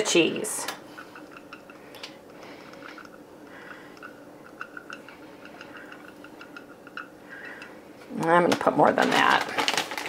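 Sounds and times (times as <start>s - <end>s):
faint steady hum: 0.0s - 10.0s
cheese shreds pattering: 8.6s - 10.0s.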